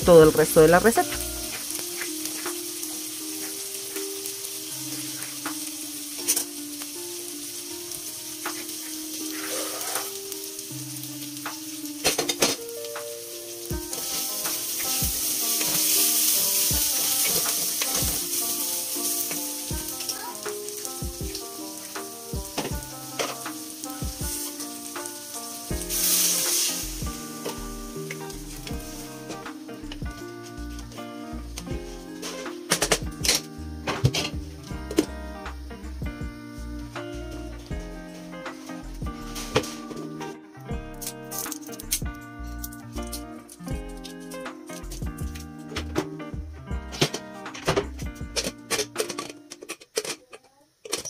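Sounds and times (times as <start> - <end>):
water hissing on hot rice: 0.0 - 40.4
rice sizzling in a pot: 0.0 - 51.0.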